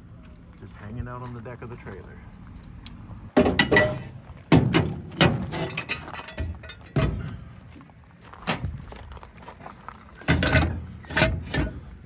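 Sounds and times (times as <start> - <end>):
sharp metal knocks: 3.4 - 7.3
metal rattling: 3.4 - 7.5, 10.2 - 12.0.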